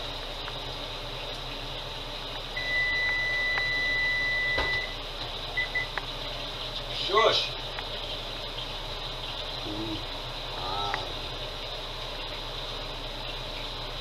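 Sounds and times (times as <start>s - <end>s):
steady fan hum: 0.0s - 14.0s
appliance beeps: 2.6s - 6.0s.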